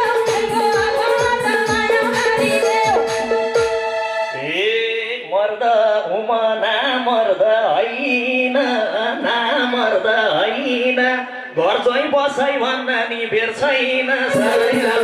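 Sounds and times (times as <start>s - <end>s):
man singing into microphone: 4.4s - 15.0s.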